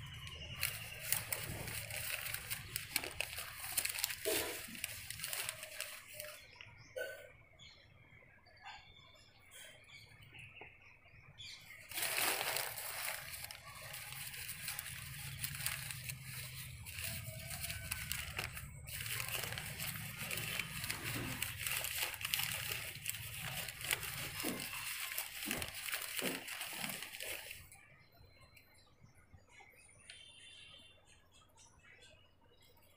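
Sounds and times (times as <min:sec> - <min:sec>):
paper rustling and crackling: 0:00.0 - 0:06.6, 0:11.8 - 0:27.8.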